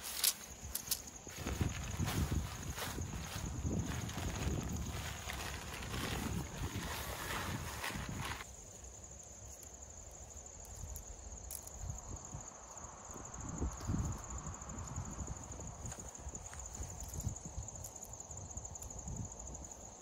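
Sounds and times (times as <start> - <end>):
tent fabric rustling: 0.0 - 8.5
insects trilling: 0.0 - 20.0.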